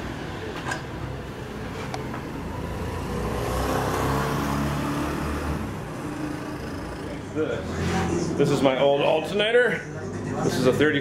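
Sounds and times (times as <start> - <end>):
vehicle engine running: 5.0 - 8.5.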